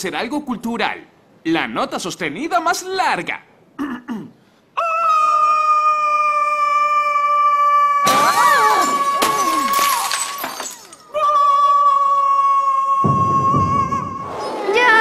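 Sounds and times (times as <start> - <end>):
glass shattering: 8.0 - 11.2.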